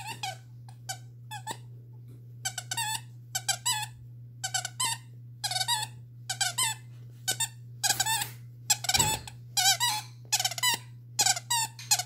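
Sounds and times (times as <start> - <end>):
squeaky toy squeaking: 2.5 - 12.0.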